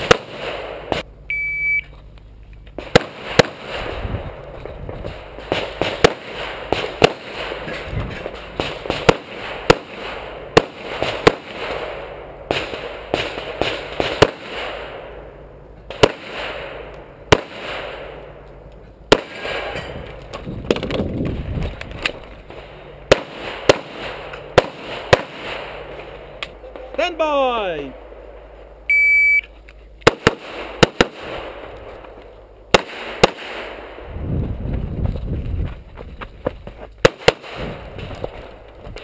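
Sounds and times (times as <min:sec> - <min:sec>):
pistol shots: 0:02.8 - 0:04.1, 0:05.1 - 0:15.1, 0:15.9 - 0:18.2, 0:19.1 - 0:20.0, 0:23.1 - 0:28.3, 0:30.0 - 0:31.7, 0:32.7 - 0:34.0.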